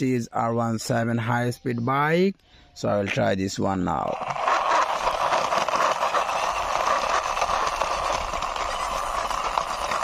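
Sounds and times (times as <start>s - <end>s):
plastic wheels rolling on concrete: 3.8s - 10.0s.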